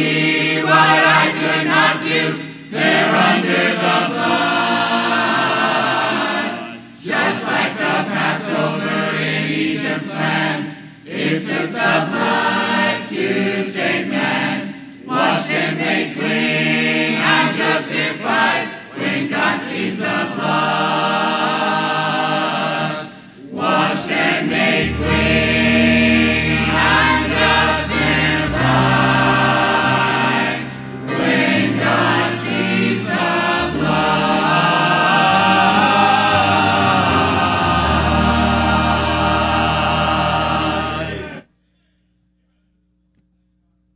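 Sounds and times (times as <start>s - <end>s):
choir singing a hymn: 0.0s - 41.5s
low sustained bass notes: 24.6s - 41.3s.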